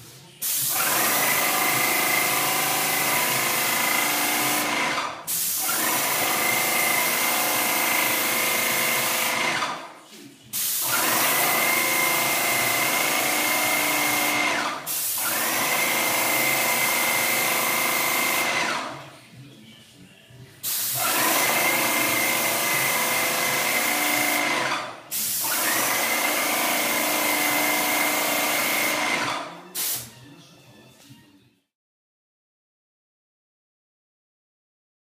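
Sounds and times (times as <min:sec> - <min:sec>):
paint spray gun hissing: 0:05.3 - 0:06.2, 0:13.8 - 0:15.5, 0:25.1 - 0:27.0.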